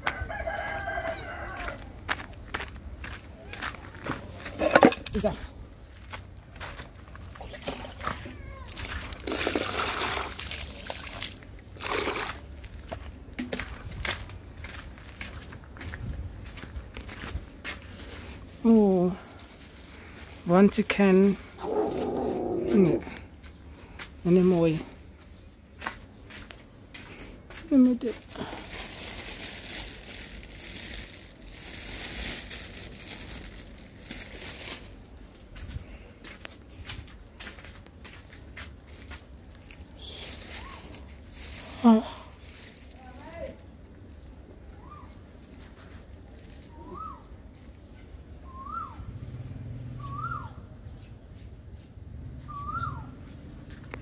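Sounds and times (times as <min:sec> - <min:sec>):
plastic bags crinkling: 0:17.9 - 0:22.6, 0:28.1 - 0:35.1, 0:39.5 - 0:44.2
animal whistle call: 0:50.0 - 0:50.5.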